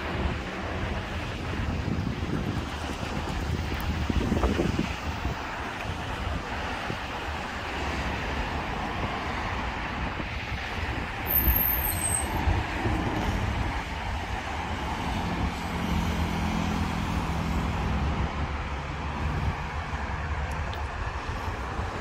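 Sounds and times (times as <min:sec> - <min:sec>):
cars driving past: 0:00.0 - 0:22.0.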